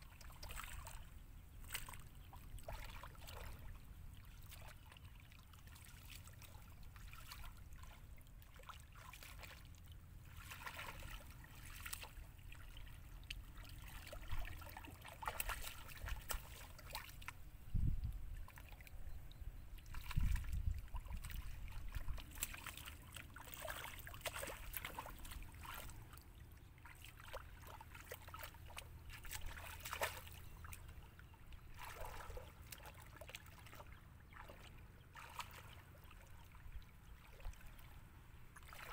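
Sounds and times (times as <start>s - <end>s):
hands splashing in muddy water: 0.2s - 1.0s, 1.6s - 3.8s, 4.4s - 9.7s, 10.3s - 17.4s, 19.8s - 31.0s, 31.7s - 36.6s, 38.6s - 38.9s.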